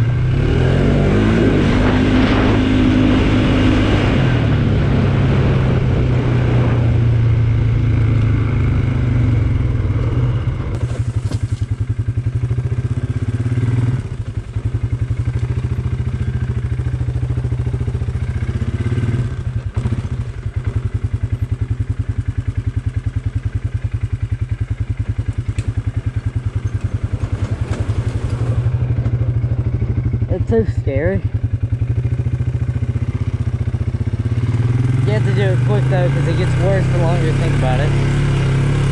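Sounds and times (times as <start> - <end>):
quad bike engine putter: 23.1 - 38.9.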